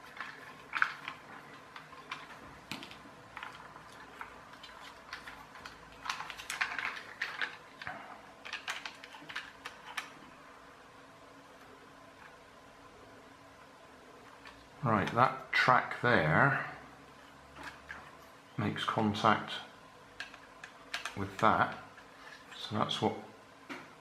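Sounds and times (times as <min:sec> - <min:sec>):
plastic parts clicking: 0:00.0 - 0:10.2, 0:20.2 - 0:21.8.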